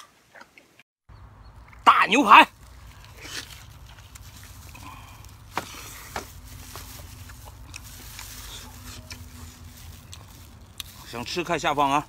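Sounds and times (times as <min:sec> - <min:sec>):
wet chewing of meat: 0:02.5 - 0:11.4.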